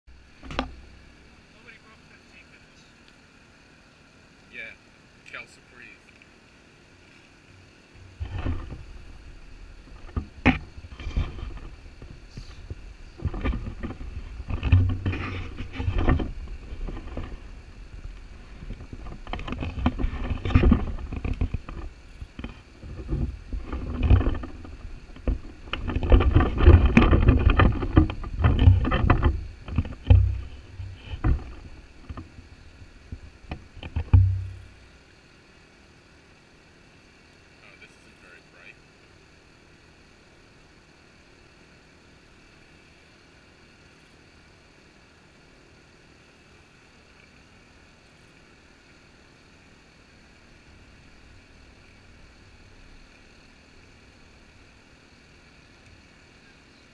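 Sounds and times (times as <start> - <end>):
sharp taps and knocks: 33.1 - 34.7.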